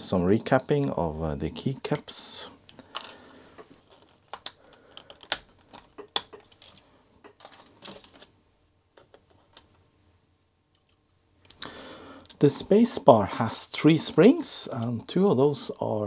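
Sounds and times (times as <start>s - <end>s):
plastic keycaps clicking: 3.9s - 6.7s.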